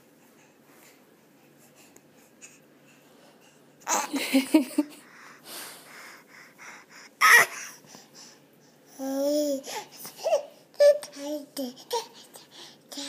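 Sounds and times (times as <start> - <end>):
baby shrieking: 7.2 - 7.6
baby babbling: 7.2 - 7.8.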